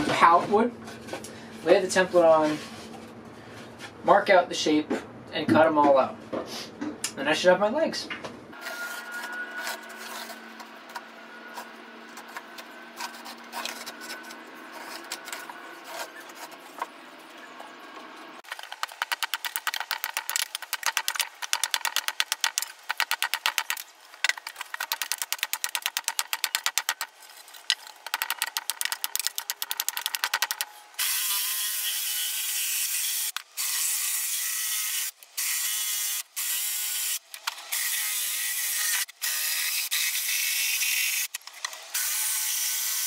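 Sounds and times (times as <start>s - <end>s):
hatchet chopping wood: 18.5s - 27.1s.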